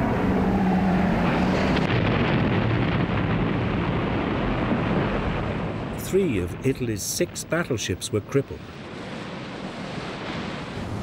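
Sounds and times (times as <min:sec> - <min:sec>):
propeller aircraft engine drone: 0:00.0 - 0:06.6
rumble of explosions: 0:00.0 - 0:11.0.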